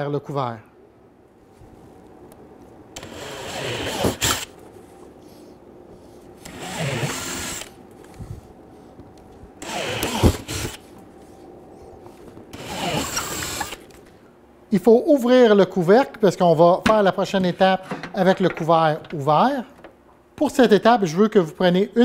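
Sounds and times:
cordless drill boring plastic: 6.4s - 7.7s, 9.6s - 10.8s, 12.5s - 13.8s.

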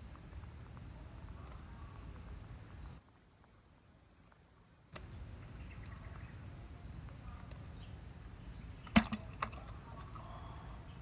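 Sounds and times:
fish knocking in plastic bucket: 8.9s - 9.6s.

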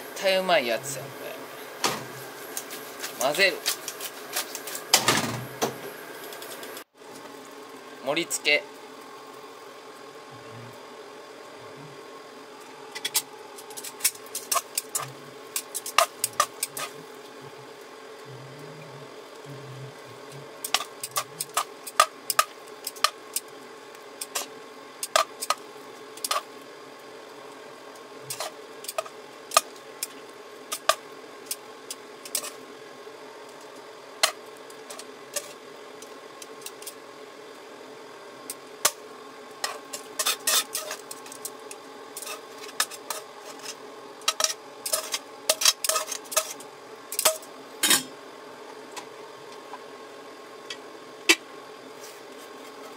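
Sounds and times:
faint steady hum: 0.0s - 52.9s.

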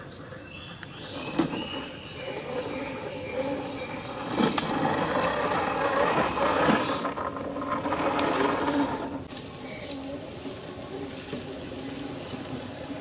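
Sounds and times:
toy car electric motor whirring: 1.2s - 9.3s.

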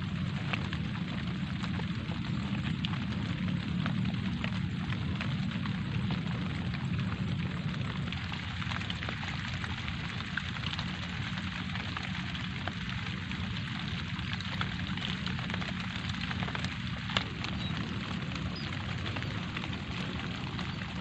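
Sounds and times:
raindrop ticks: 0.0s - 21.0s
steady low rumble: 0.0s - 21.0s.

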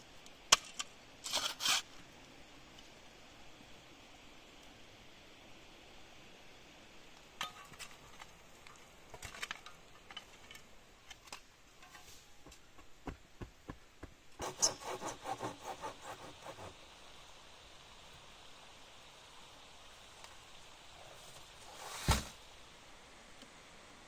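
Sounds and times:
rubbing strokes on wood: 14.4s - 16.8s.

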